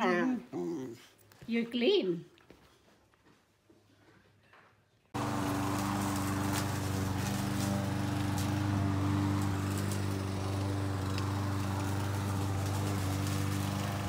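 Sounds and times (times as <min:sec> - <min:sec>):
small engine running: 0:05.2 - 0:14.0.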